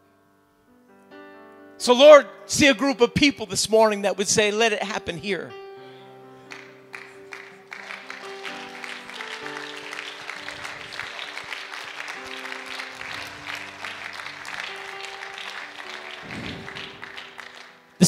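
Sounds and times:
soft church music chords: 0:00.0 - 0:18.0
congregation clapping: 0:06.5 - 0:18.0.

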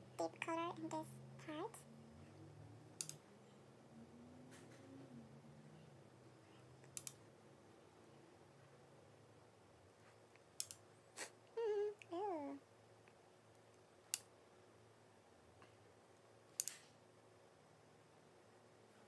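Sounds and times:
sharp clicks: 0:03.0 - 0:03.2, 0:06.8 - 0:07.2, 0:10.4 - 0:10.8, 0:16.6 - 0:16.8
woman humming: 0:11.6 - 0:12.6.

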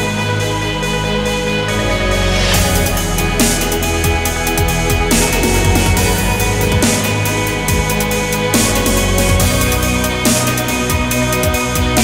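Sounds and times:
electronic music with steady beat: 0:00.0 - 0:12.0
falling bass slides: 0:01.6 - 0:12.0.

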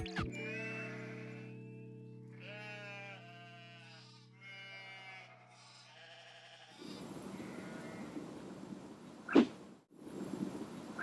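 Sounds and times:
held music chord: 0:00.0 - 0:04.4
goats and sheep bleating: 0:00.0 - 0:08.1.

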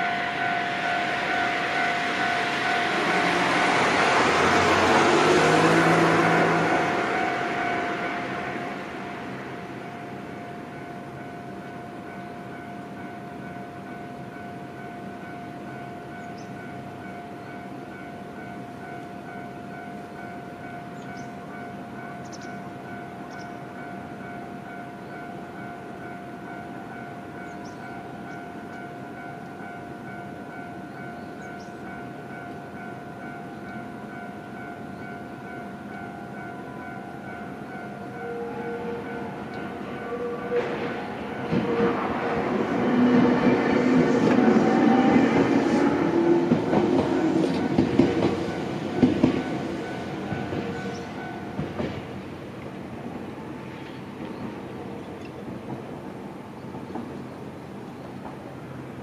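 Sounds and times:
level-crossing warning bell: 0:00.0 - 0:53.9
road traffic rumble: 0:00.0 - 0:59.0
bird chirps: 0:16.2 - 0:16.6, 0:21.0 - 0:21.4, 0:22.2 - 0:22.6, 0:23.2 - 0:23.6, 0:27.4 - 0:28.5, 0:30.9 - 0:31.9.

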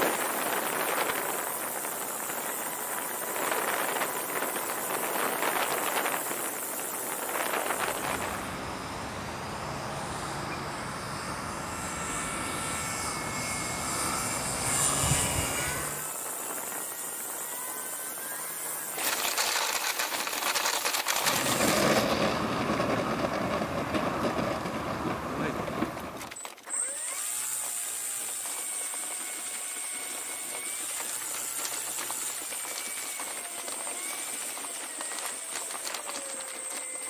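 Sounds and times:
wheels rattling over grass: 0:00.0 - 0:08.4, 0:18.9 - 0:26.7, 0:29.6 - 0:37.0
high whine: 0:00.0 - 0:19.1.

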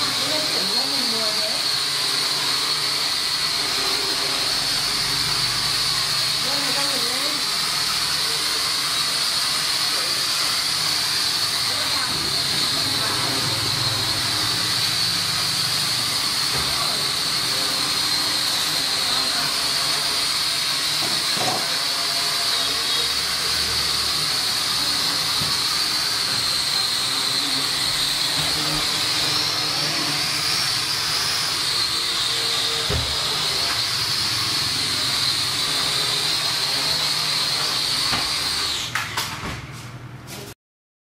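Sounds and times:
toy drone motors whining: 0:00.0 - 0:39.4.

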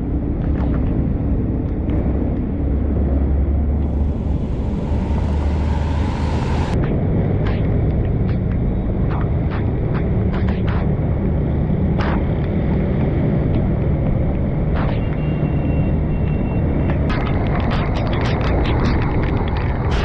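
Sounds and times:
heavy rain and wind rumble: 0:00.0 - 0:15.2, 0:16.0 - 0:20.0
hiss: 0:03.8 - 0:06.8.

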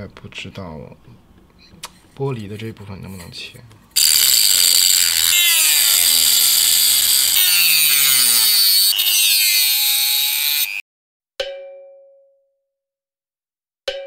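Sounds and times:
motor whine: 0:04.0 - 0:10.8
rotary tool grinding glass: 0:04.0 - 0:10.8.

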